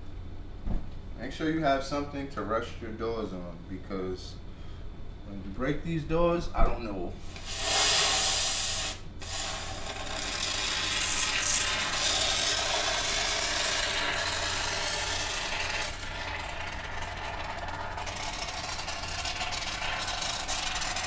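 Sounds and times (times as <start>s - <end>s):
low steady hum: 0.0s - 21.0s
spray foam can hissing: 7.3s - 15.9s.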